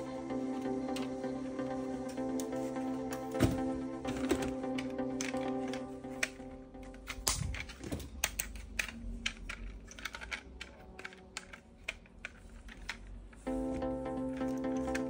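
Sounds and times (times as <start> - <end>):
plastic toy parts clicking: 4.0 - 13.5.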